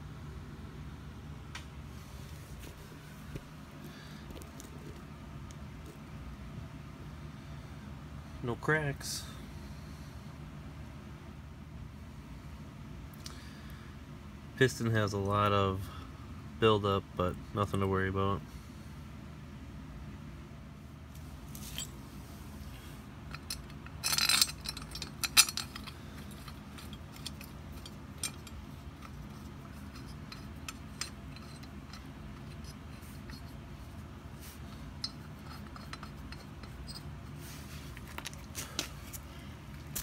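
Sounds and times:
metal bolts clinking and scraping: 21.5 - 22.1, 23.2 - 40.0.

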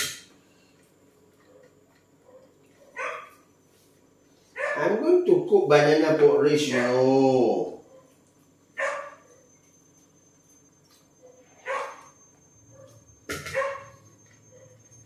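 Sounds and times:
dog barking: 1.5 - 3.4, 4.6 - 5.0, 7.8 - 8.2, 8.8 - 9.5, 11.2 - 14.8.

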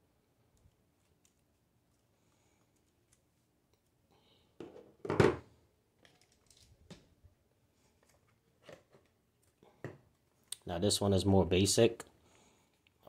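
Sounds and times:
plastic items knocking: 4.6 - 5.5.

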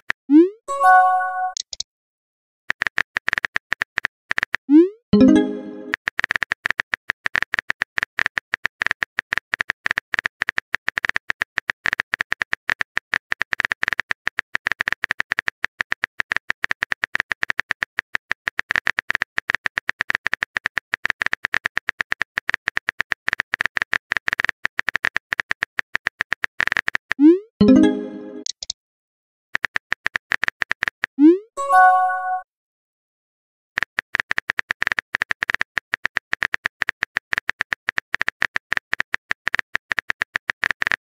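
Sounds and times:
keyboard typing clicks: 0.8 - 1.8, 2.8 - 12.8, 26.2 - 28.8.

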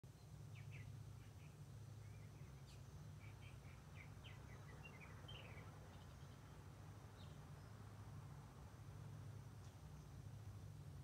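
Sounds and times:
birds chirping and chattering: 0.1 - 7.8
steady low hum: 0.1 - 11.0.

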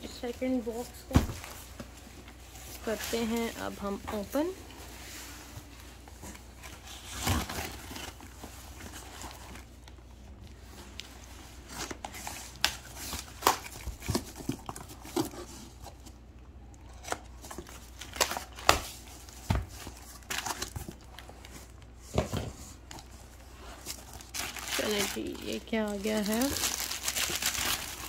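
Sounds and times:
packing tape tearing: 24.1 - 28.0.

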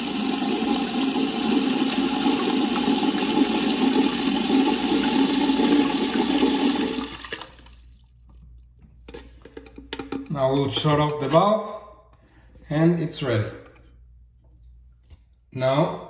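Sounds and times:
water gushing into plastic cup: 0.0 - 8.8.

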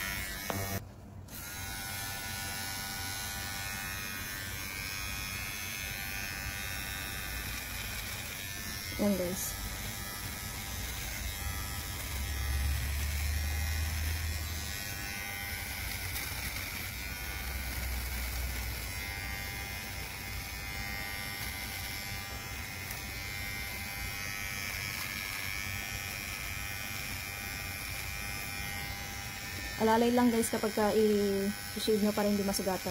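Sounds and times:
electric trimmer buzzing: 0.0 - 32.9.

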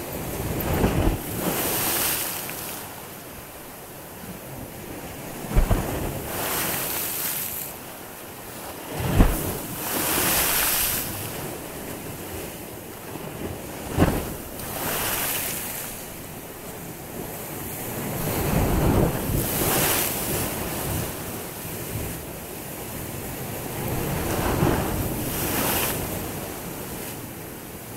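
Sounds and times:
wind on microphone: 0.0 - 3.4, 8.5 - 12.6, 13.2 - 27.3
waves breaking on shore: 0.0 - 27.9.

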